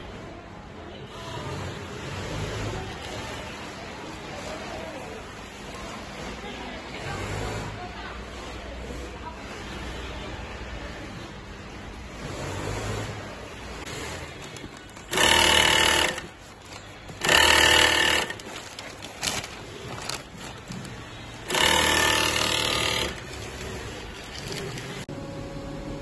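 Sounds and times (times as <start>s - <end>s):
sewing machine stitching: 12.1s - 25.1s.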